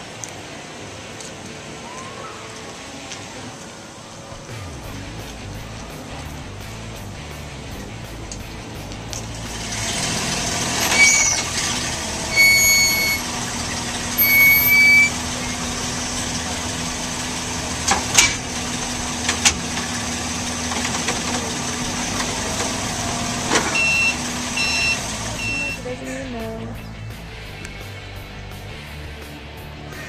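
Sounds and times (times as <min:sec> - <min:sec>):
vehicle engine humming: 0:00.0 - 0:30.0
long high beeping tones: 0:12.2 - 0:15.6, 0:23.8 - 0:25.9.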